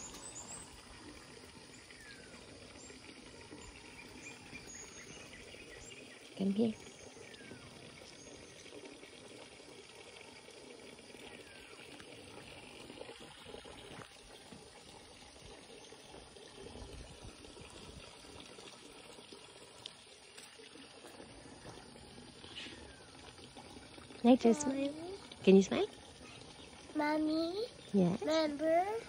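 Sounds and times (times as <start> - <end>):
trickling water: 0.0 - 29.0.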